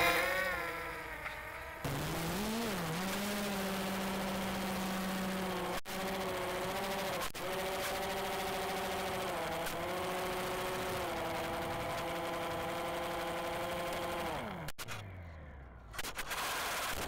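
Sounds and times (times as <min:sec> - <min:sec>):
model plane motor humming: 0:03.4 - 0:14.6.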